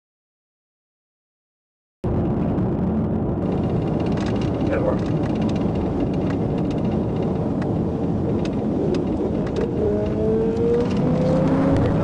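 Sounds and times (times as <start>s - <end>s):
road and wind rumble inside car: 2.1s - 12.0s
car engine accelerating: 3.4s - 12.0s.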